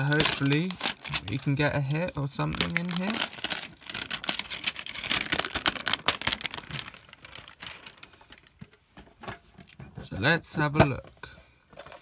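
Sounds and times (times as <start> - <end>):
plastic shrink-wrap crinkling: 0.0 - 8.8.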